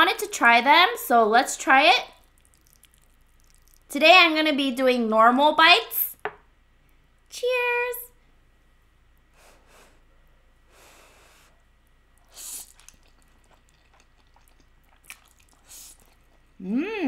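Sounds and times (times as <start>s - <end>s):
wet mouth clicks of chewing: 2.2s - 3.9s, 12.2s - 16.4s
soft breaths: 9.3s - 12.6s.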